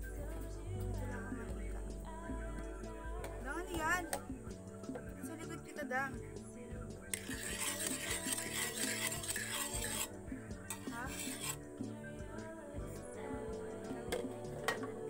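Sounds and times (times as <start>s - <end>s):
utensil scraping cookware: 7.1s - 10.1s, 10.7s - 11.7s.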